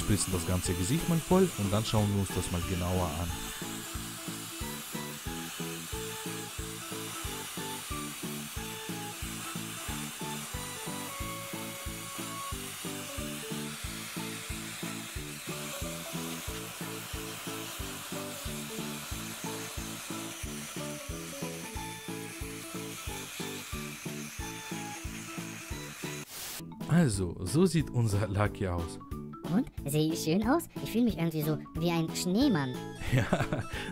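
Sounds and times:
freeze spray hissing: 0.0 - 26.7
background music: 0.0 - 33.9.

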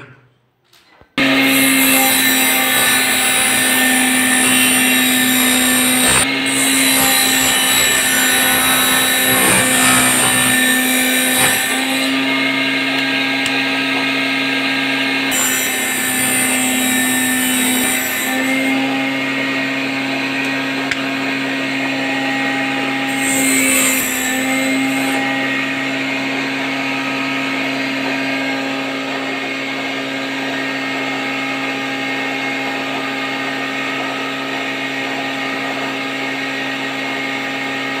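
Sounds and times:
cutter rasping into wood: 1.2 - 13.6, 15.3 - 19.1, 23.0 - 25.4
cutting machine motor whine: 1.2 - 32.0.

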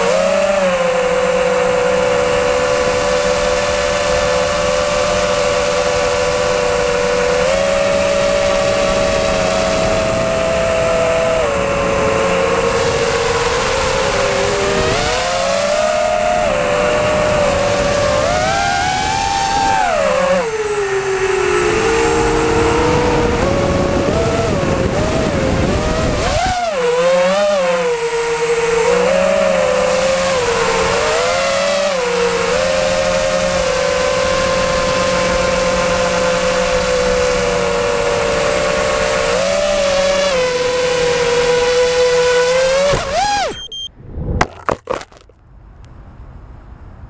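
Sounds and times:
drone propellers whining: 0.0 - 44.4
low rumbling noise: 42.6 - 47.0.

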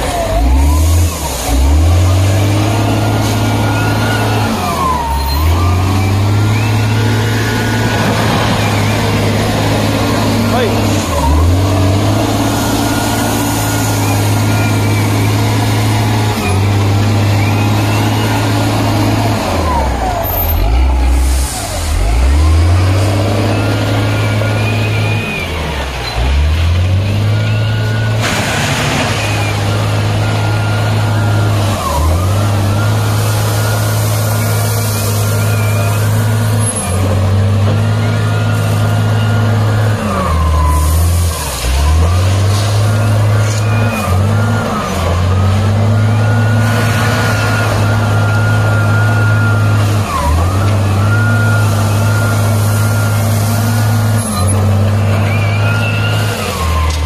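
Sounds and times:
diesel engine running hard: 0.0 - 57.0.

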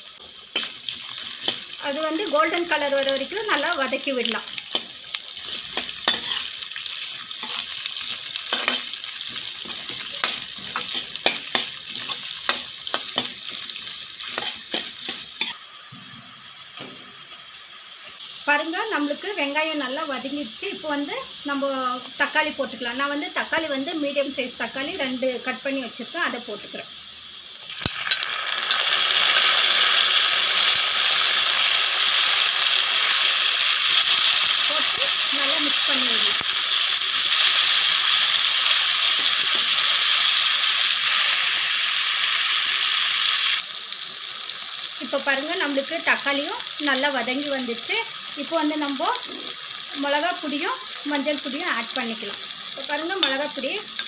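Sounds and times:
onions sizzling in oil: 0.0 - 54.0
spatula scraping pan: 4.7 - 6.6, 14.2 - 15.6.

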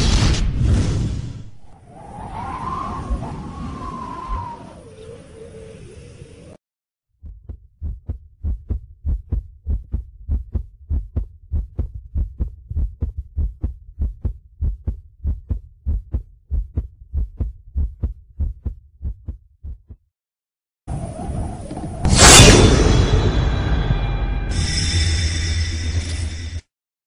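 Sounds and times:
heartbeat thumps: 7.2 - 20.0.

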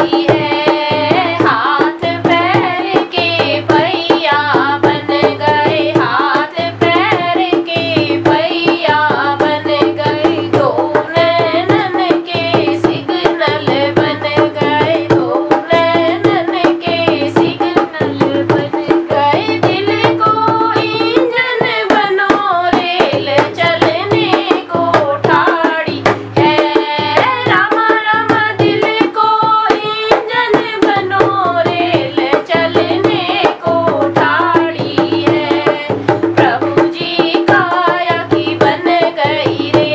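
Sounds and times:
hand drum rhythm: 0.0 - 39.9
woman singing: 0.0 - 39.9.

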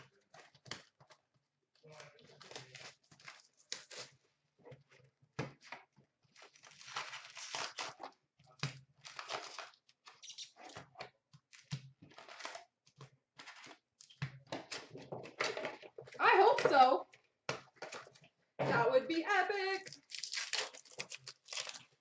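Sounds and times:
plastic wrap crinkling and tearing: 1.9 - 4.2, 6.3 - 10.8, 11.5 - 14.9, 19.8 - 22.0.

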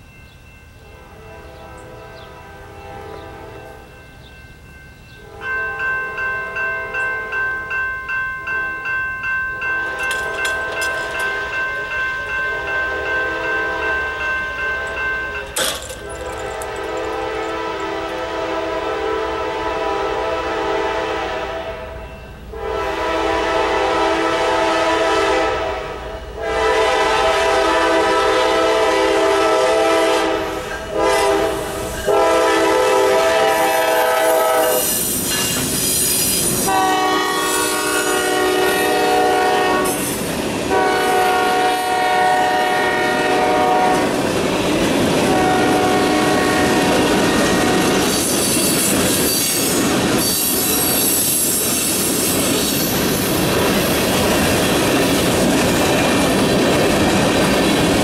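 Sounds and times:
locomotive horn: 0.9 - 3.9, 5.2 - 7.4, 9.8 - 35.0, 36.6 - 40.1, 40.7 - 44.1, 45.2 - 48.3
train wheels clattering on rails: 9.4 - 18.3, 33.4 - 58.0.

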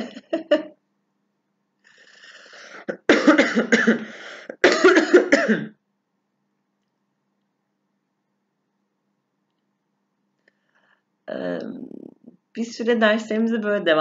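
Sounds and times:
woman coughing: 0.0 - 0.8, 2.8 - 5.8.

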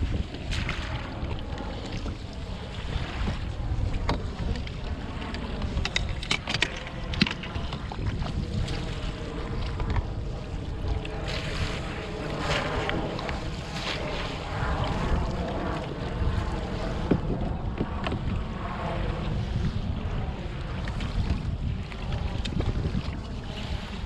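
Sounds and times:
water lapping against kayak hull: 0.0 - 24.0
wind buffeting microphone: 0.0 - 24.0.

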